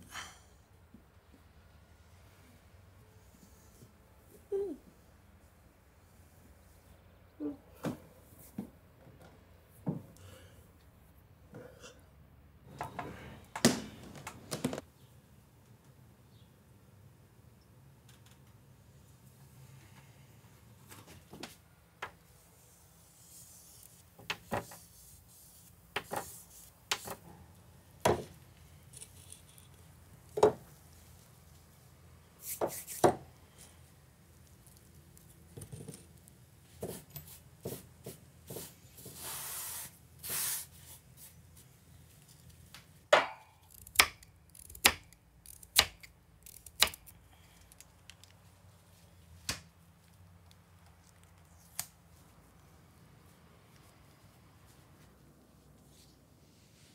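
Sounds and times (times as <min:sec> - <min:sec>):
brief hiss: 0:39.2 - 0:40.8.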